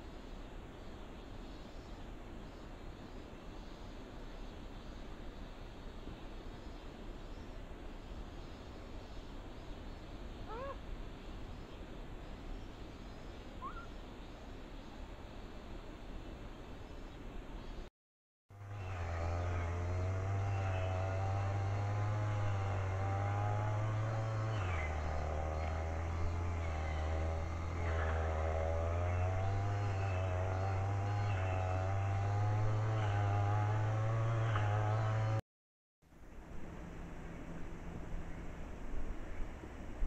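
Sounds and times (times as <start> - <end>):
low mechanical hum: 18.6 - 35.4, 36.1 - 40.0.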